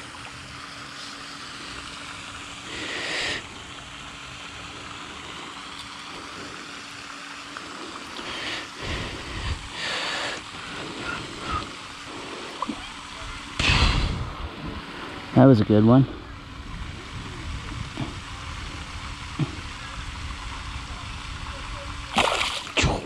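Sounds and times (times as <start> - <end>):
wind and water hiss: 0.0 - 23.0
fish splashing at surface: 22.1 - 23.0.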